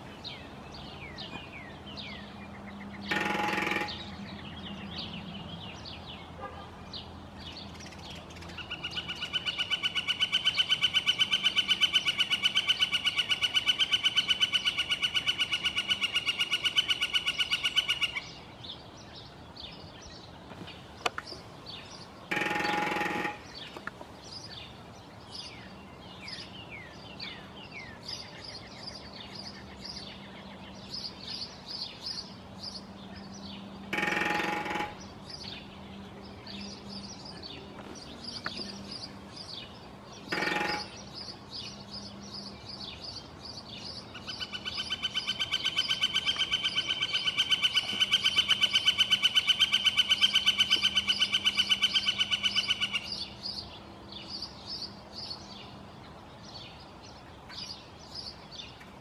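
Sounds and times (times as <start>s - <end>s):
small birds chirping: 0.0s - 59.0s
woodpecker call of repeated notes: 3.0s - 4.5s, 7.8s - 18.4s, 22.2s - 24.0s, 33.8s - 35.7s, 40.2s - 41.4s, 44.0s - 53.4s
woodpecker drumming on metal: 3.1s - 4.2s, 22.3s - 23.7s, 33.9s - 35.0s, 40.3s - 41.0s.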